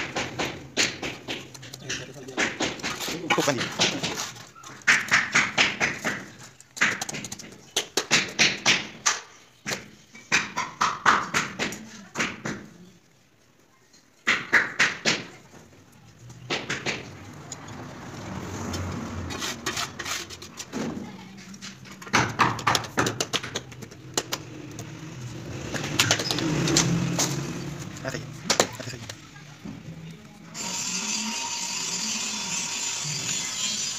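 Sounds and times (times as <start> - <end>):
tiles tapped into mortar: 4.8 - 12.7, 22.0 - 24.9.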